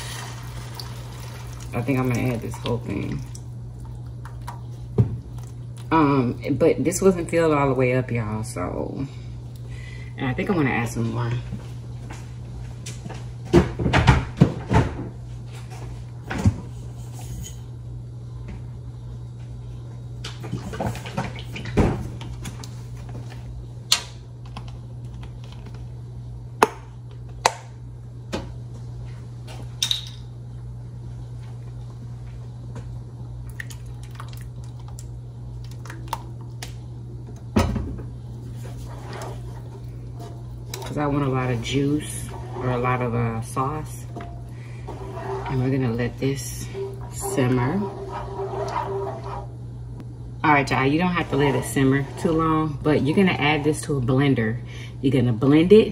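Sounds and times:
steady low hum: 0.0s - 55.9s.

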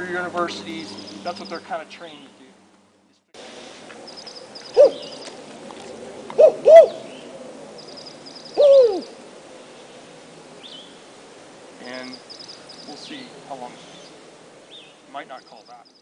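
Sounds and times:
imitated owl hoots: 4.6s - 5.4s, 6.2s - 12.7s.

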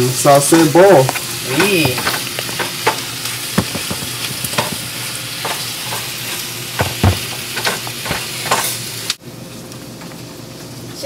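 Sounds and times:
peppers sizzling in frying pan: 0.0s - 11.0s
wooden spoon scraping a pan: 3.6s - 8.7s.

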